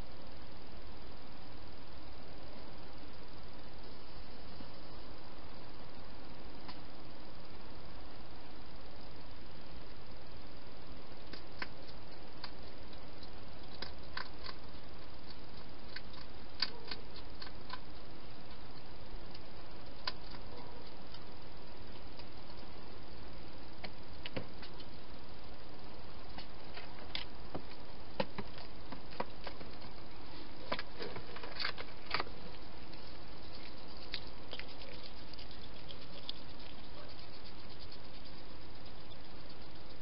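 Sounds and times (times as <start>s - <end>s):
steady background hiss: 0.0s - 40.0s
hedgehog eating clicks and crunches: 11.2s - 22.7s, 30.7s - 40.0s.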